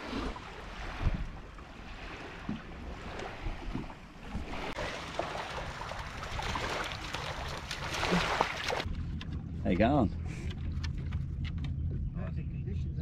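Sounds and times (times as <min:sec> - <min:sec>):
small waves lapping on beach: 0:00.0 - 0:08.9
dog splashing in shallows: 0:04.6 - 0:08.9.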